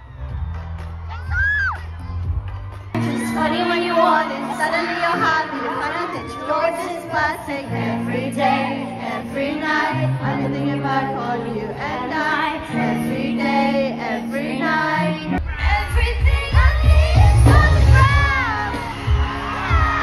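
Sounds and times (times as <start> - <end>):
woman singing: 3.0 - 20.0
heavy bass and drums: 15.4 - 20.0.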